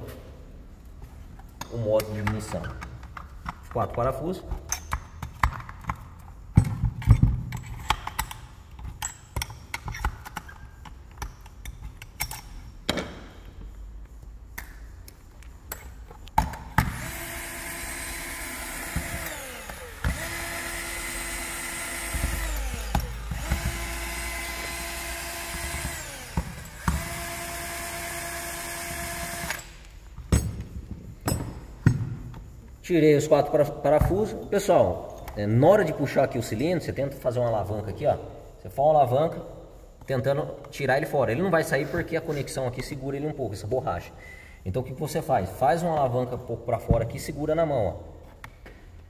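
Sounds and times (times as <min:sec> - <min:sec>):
tools and parts clicking: 0:01.3 - 0:32.8
power drill whining: 0:16.8 - 0:29.9.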